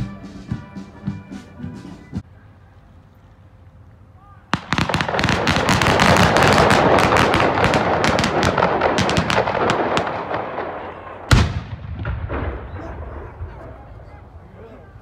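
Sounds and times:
rapid crackling pops: 4.6s - 13.4s
field gun boom: 4.6s - 13.8s.

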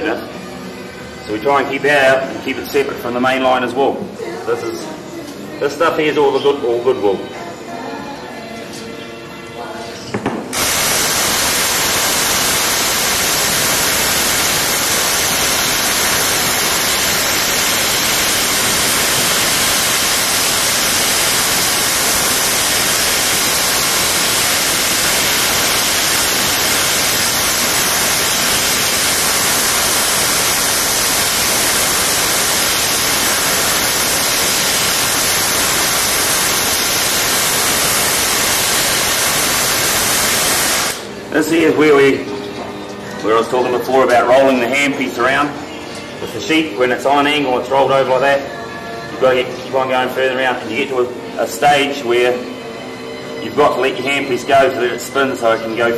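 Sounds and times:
static hiss: 10.0s - 42.4s.

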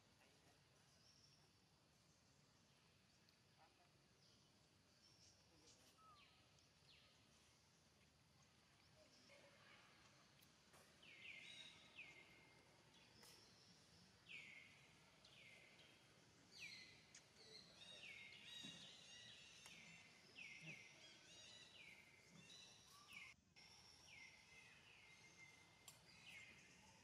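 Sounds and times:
birds calling: 10.8s - 23.4s.

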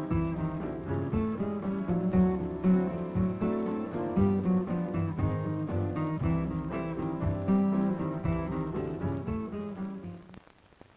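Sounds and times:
jingle music with plucked guitar: 0.0s - 10.4s.

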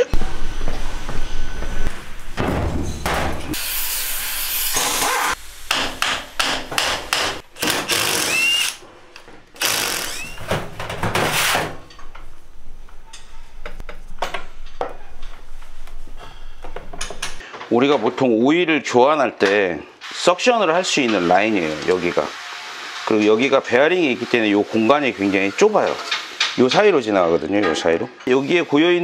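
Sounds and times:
cordless impact driver running: 7.6s - 8.8s, 9.6s - 10.4s.

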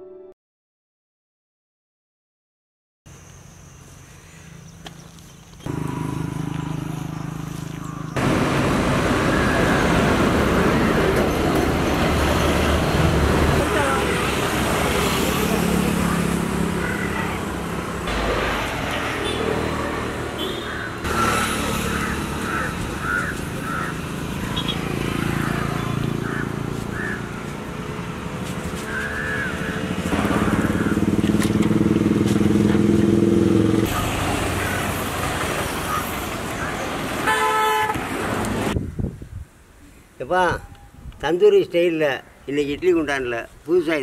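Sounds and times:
vehicles passing on road: 3.2s - 44.0s
loud engine: 5.7s - 38.8s.

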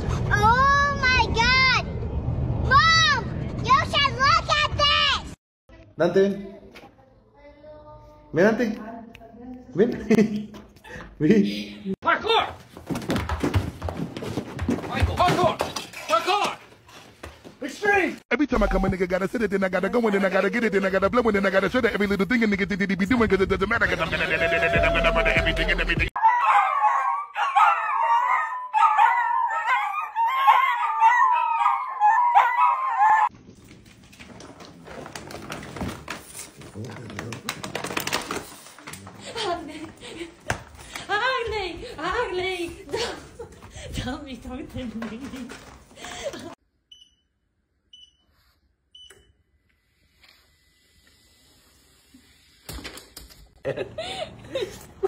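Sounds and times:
dogs howling: 26.2s - 33.3s
treadmill short high beeps: 46.9s - 47.3s, 47.9s - 48.3s, 48.9s - 49.4s.

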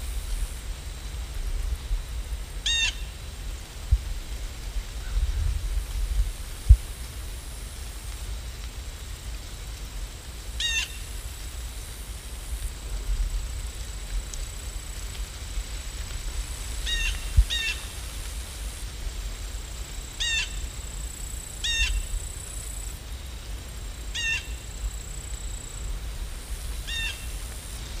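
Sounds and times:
bird calling: 2.6s - 3.0s.

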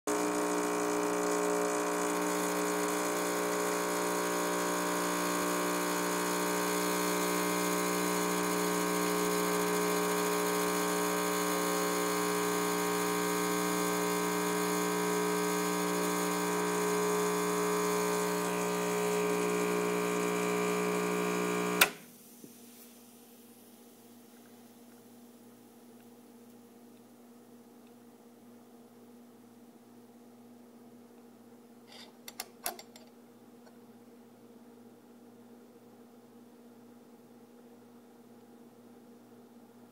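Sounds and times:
espresso machine pump humming: 0.1s - 22.0s.

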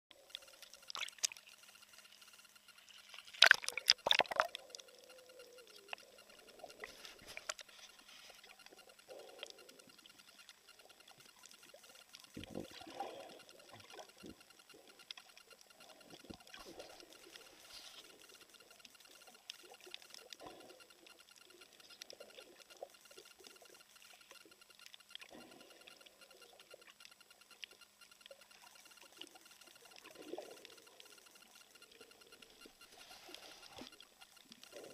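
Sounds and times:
muffled underwater clicks: 0.1s - 34.9s
water splashing against camera: 0.3s - 26.0s
bubbly water swishes: 3.3s - 4.7s.

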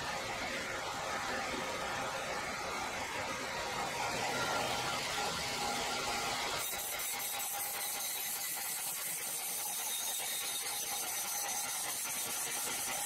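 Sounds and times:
bandsaw blade cutting wood: 6.6s - 13.0s.

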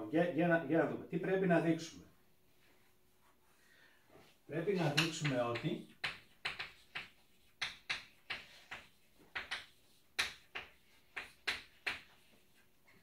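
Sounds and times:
chalk tapping and scraping on blackboard: 4.7s - 13.0s.

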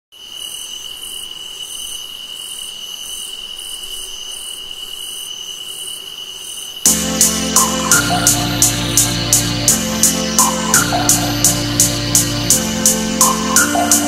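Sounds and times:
insect pulsing call: 0.2s - 6.9s
insect high trill: 0.2s - 11.6s.

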